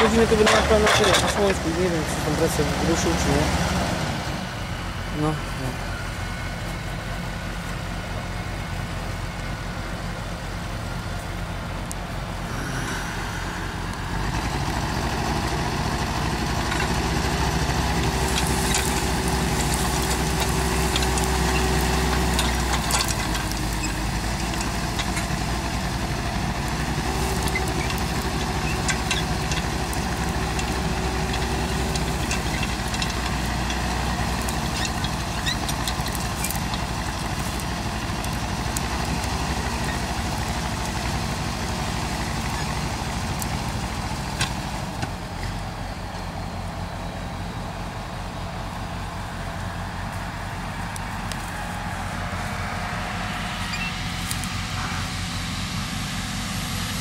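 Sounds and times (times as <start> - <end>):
metallic clanks of track plates: 0.0 - 1.7
diesel engine running: 0.0 - 57.0
high whine: 12.3 - 15.5.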